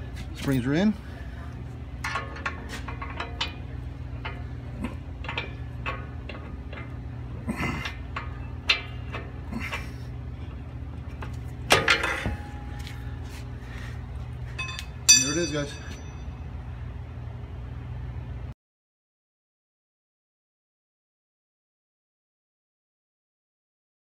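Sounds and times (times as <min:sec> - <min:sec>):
steady low hum: 0:00.0 - 0:18.6
metal clank: 0:02.0 - 0:10.0, 0:11.6 - 0:12.7, 0:14.6 - 0:16.2.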